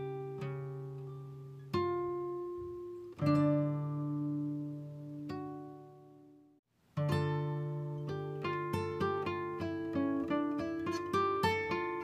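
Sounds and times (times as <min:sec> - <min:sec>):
acoustic guitar chords strummed: 0:07.0 - 0:12.0.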